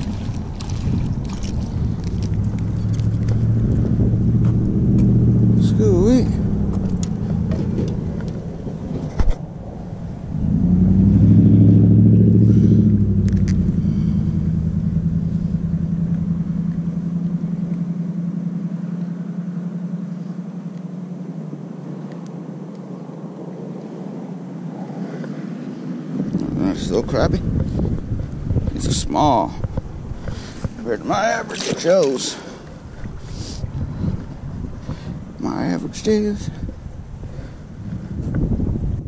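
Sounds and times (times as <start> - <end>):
motor droning: 0.0 - 28.7.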